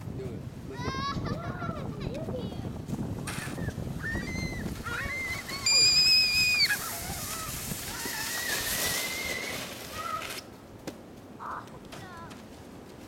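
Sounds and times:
sled scraping over snow: 1.4 - 10.6.

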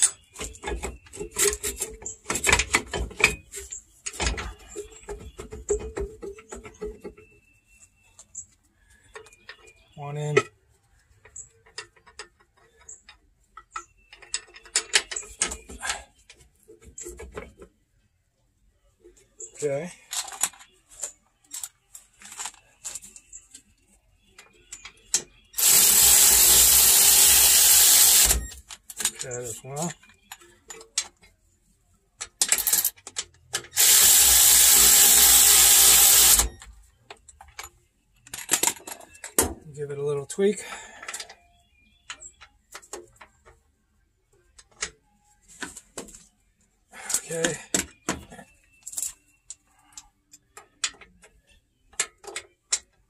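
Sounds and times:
ratchet wrench clicking: 25.6 - 28.5, 33.8 - 36.6.

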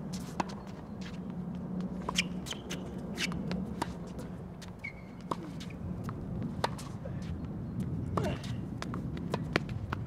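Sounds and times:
tennis balls bouncing on hard court: 0.2 - 10.0
tennis balls struck by rackets: 1.9 - 7.0.

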